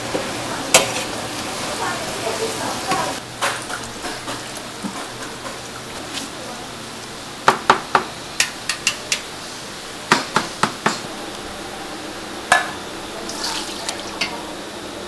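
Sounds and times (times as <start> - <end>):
liquid pouring and splashing: 13.2 - 14.3.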